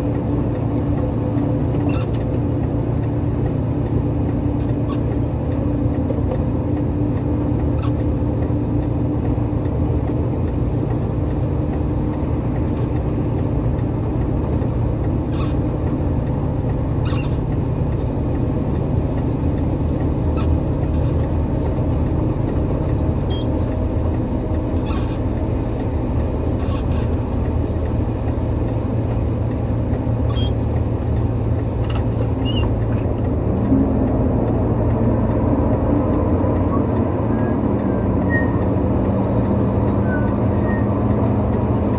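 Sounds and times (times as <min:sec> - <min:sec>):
heavy vehicle engine idling: 0:00.0 - 0:41.9.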